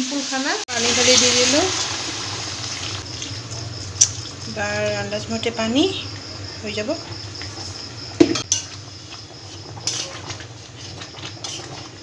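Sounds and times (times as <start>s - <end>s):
spatula scraping a wok: 7.0s - 12.0s.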